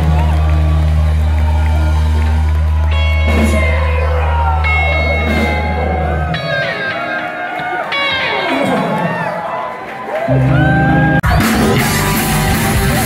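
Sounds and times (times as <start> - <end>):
crowd shouting and whooping: 0.0 - 13.0
live band playing amplified music: 0.0 - 13.0.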